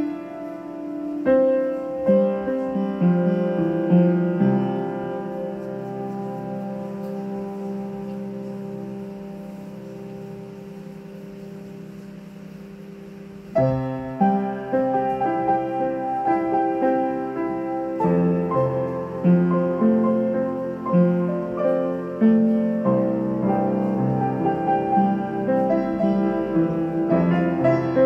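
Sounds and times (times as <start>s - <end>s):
gentle piano melody: 0.0s - 28.0s
soft sustained tone: 0.0s - 28.0s.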